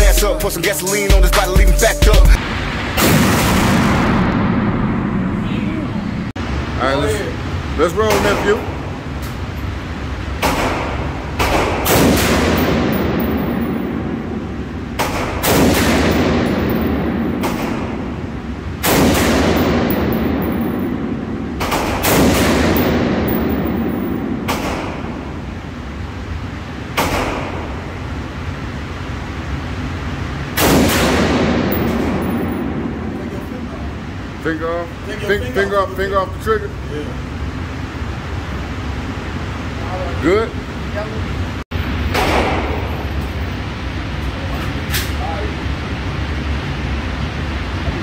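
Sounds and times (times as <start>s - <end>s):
rifle shots echoing indoors: 2.9s - 5.3s, 10.4s - 26.0s, 26.7s - 28.9s, 30.4s - 33.2s, 42.0s - 43.0s.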